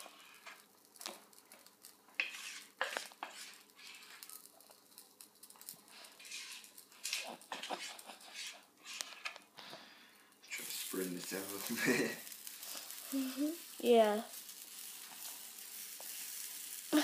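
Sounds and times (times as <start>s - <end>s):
utensil scraping in bowl: 2.1s - 4.5s, 5.9s - 9.4s.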